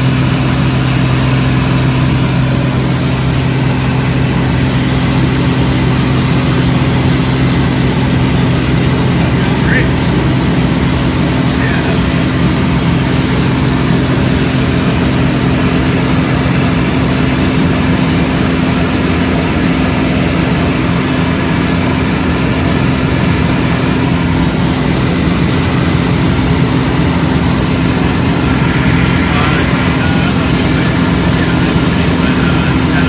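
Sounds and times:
plane engine drone: 0.0s - 33.0s
air rushing: 26.0s - 32.2s.

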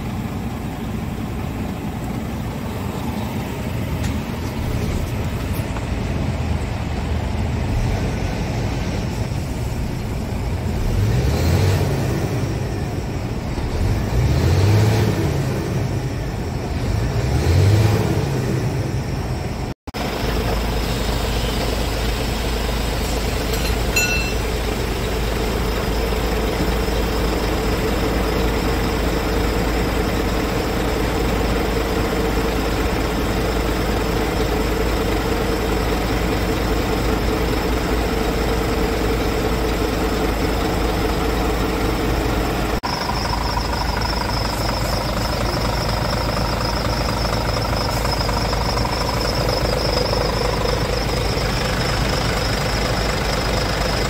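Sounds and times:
diesel engine idling: 0.0s - 54.0s.

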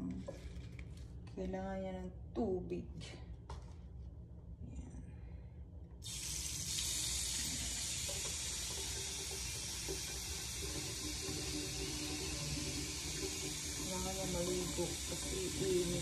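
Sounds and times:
water running into basin: 6.0s - 16.0s.

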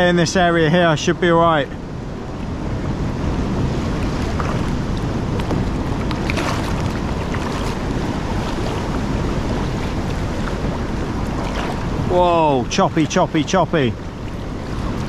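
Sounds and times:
choppy sea waves churning: 0.0s - 15.0s
wind on microphone: 0.0s - 15.0s.

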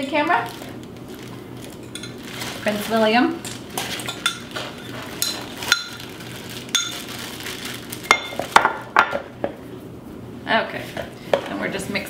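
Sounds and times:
utensils clinking against glass: 1.7s - 2.5s, 3.4s - 6.1s, 6.7s - 7.1s.

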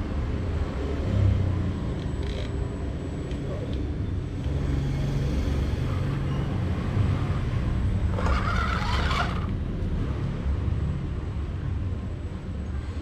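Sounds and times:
rc car motor driving: 7.9s - 9.6s
harsh burst of rc car tipping: 8.1s - 9.6s.

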